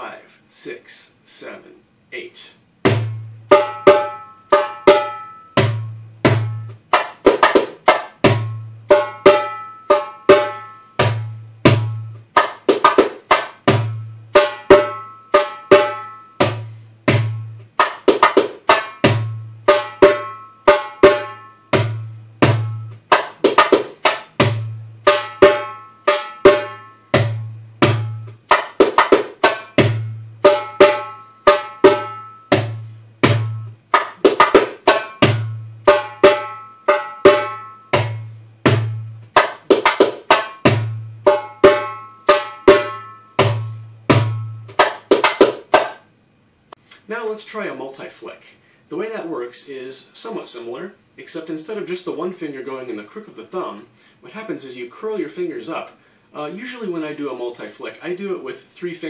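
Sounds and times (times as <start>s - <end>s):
hand drum rhythm: 2.8s - 46.0s.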